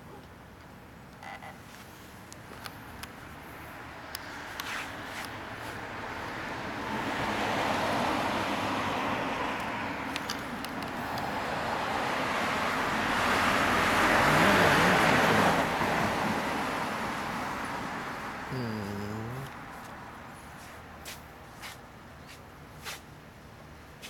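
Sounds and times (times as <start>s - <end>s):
cars driving past: 3.2s - 18.6s.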